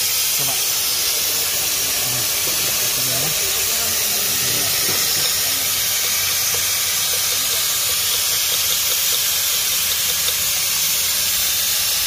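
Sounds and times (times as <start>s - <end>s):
suction tube hissing: 0.0s - 12.0s.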